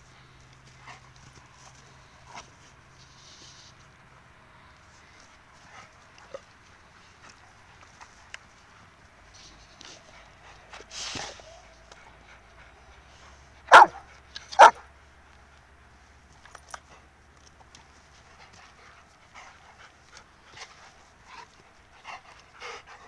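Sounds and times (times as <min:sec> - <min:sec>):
rustle: 0:00.0 - 0:23.0
dog barking: 0:13.7 - 0:14.8.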